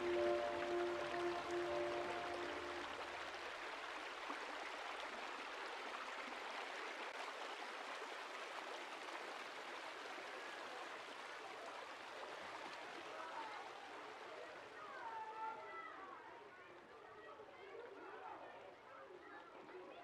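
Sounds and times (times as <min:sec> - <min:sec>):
river water rushing: 0:00.0 - 0:03.4.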